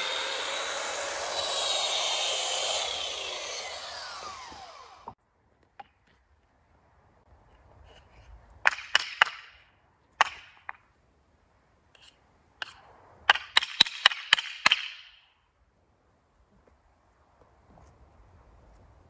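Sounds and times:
wood being struck: 0:00.0 - 0:05.2, 0:08.6 - 0:09.5.

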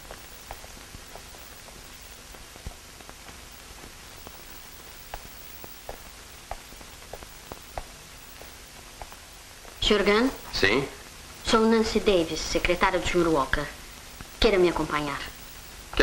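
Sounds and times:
faint clicks and pops: 0:00.0 - 0:10.0, 0:12.6 - 0:14.6
film soundtrack hiss: 0:00.0 - 0:16.0.

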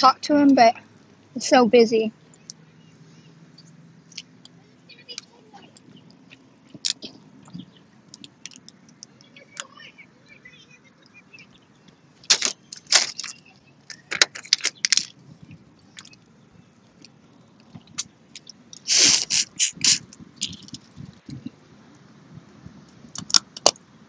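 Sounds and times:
crawfish shells cracking: 0:11.9 - 0:15.2, 0:23.1 - 0:23.8
wet sucking slurps: 0:18.8 - 0:20.1.

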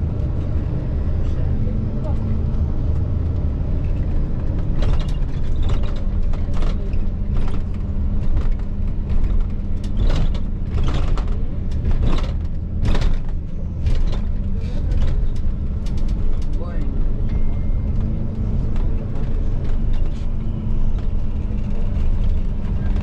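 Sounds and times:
aircraft cabin rumble and hum: 0:00.0 - 0:23.0
sharp clicks and knocks: 0:02.9 - 0:16.8.

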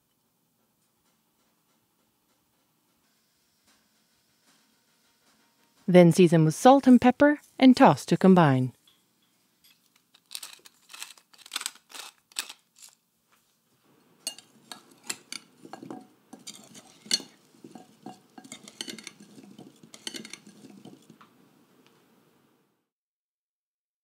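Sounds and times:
pepper mill grinding: 0:09.7 - 0:13.0, 0:14.2 - 0:21.3
metal spoon clinking in glass bowl: 0:14.2 - 0:21.1.

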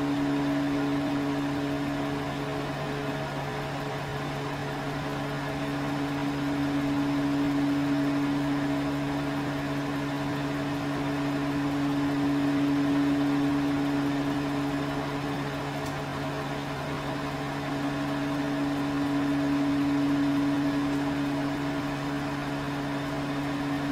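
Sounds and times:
microwave oven humming: 0:00.0 - 0:23.9.

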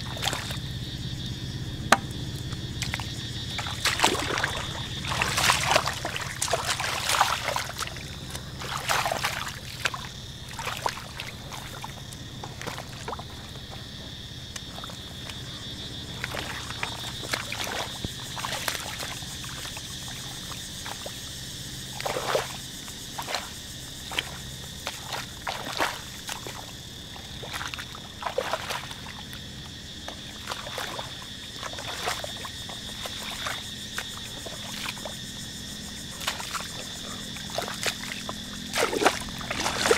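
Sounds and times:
muddy water sloshing and splashing: 0:00.0 - 0:39.9.

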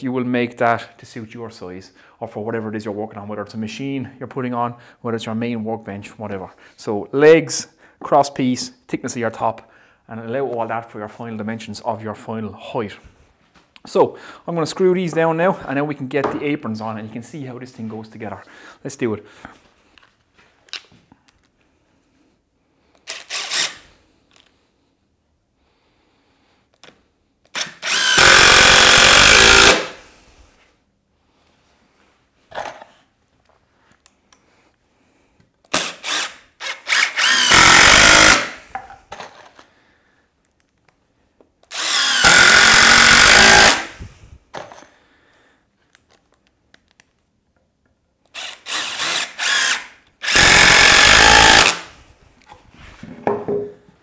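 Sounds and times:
cordless drill driving screws: 0:23.0 - 0:23.9, 0:27.5 - 0:30.0, 0:35.7 - 0:38.7, 0:41.7 - 0:44.0, 0:48.3 - 0:51.9.

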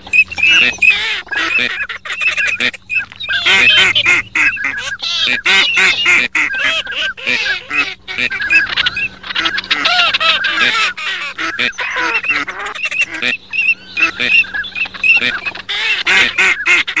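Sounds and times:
ducks calling: 0:00.0 - 0:17.0.

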